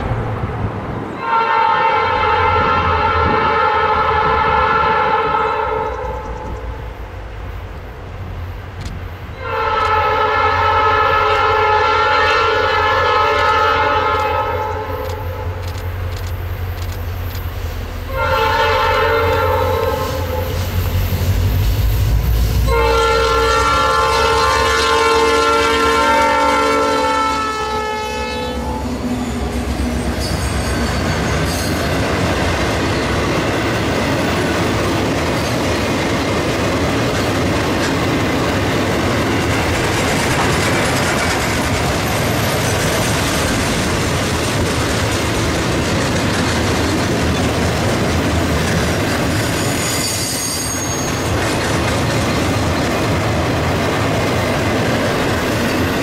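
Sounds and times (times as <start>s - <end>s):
train wheels rumbling: 0.0s - 56.0s
locomotive air horn blasts: 1.2s - 6.2s, 9.4s - 15.6s, 18.0s - 20.7s, 22.4s - 31.0s
wheels clicking over rail joints: 31.3s - 49.9s.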